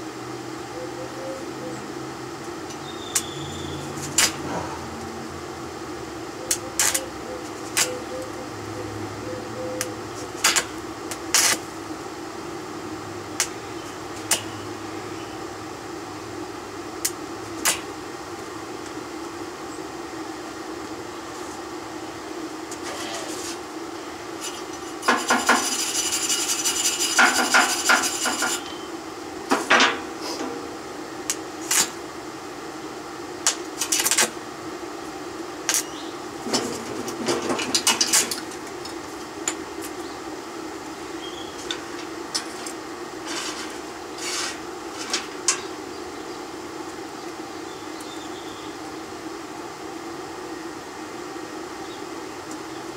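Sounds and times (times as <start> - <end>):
steady hum: 0.0 - 52.9
wire brush scraping steel: 6.5 - 8.0, 24.4 - 28.9, 41.8 - 45.6
chipping hammer tapping metal: 25.0 - 28.8.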